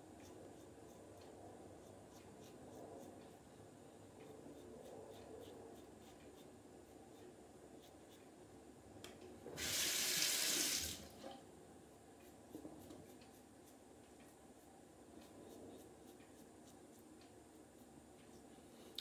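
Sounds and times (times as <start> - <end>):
tap water hissing into sink: 9.6 - 11.1.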